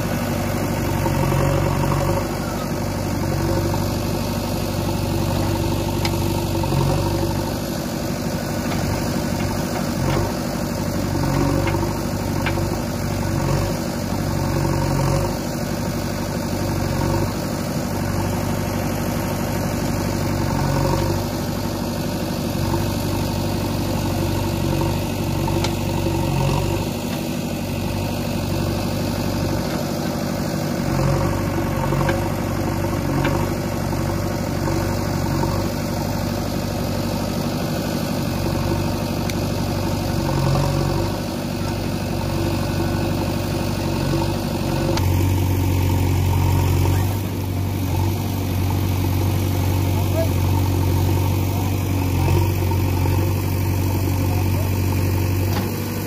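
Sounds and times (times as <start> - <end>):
backhoe digging and dumping soil: 0.0 - 56.0
diesel engine running: 0.0 - 56.0.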